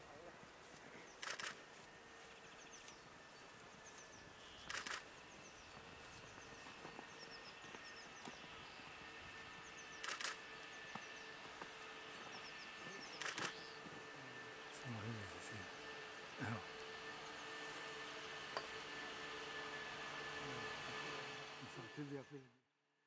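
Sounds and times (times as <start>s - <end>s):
camera shutters firing: 1.2s - 1.6s, 4.6s - 5.1s, 10.0s - 10.4s, 13.2s - 13.6s.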